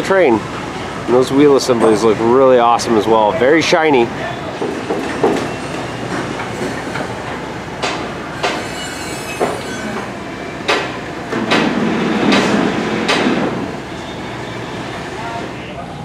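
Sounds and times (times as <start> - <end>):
construction background rumble: 0.0 - 16.0
metal clanks and knocks: 4.6 - 10.1, 10.7 - 13.6.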